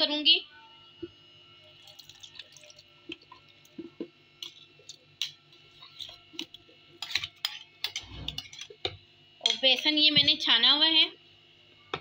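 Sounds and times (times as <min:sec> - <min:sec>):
metal spoon tapping and scraping: 0:04.4 - 0:10.3.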